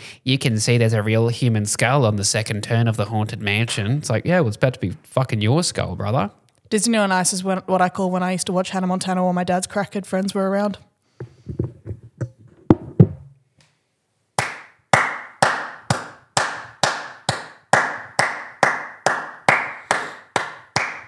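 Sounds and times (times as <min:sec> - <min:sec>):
soft knocks and thumps: 0:11.2 - 0:13.4
person clapping hands: 0:14.4 - 0:21.0.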